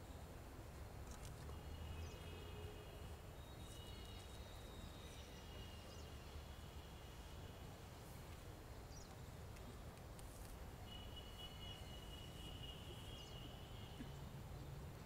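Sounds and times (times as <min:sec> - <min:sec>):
thin high insect or bird tone: 0:10.9 - 0:13.6.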